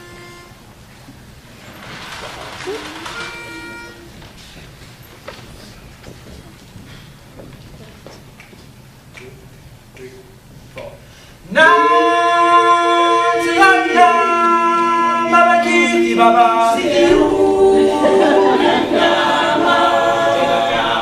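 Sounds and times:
male group singing in harmony: 11.5 - 21.0.

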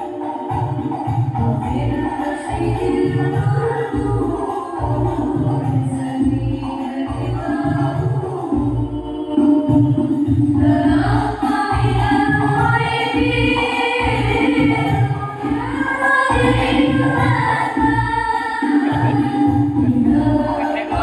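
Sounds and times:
people singing: 0.0 - 21.0
song over loudspeakers: 0.0 - 21.0
steady bass beat: 18.8 - 21.0.

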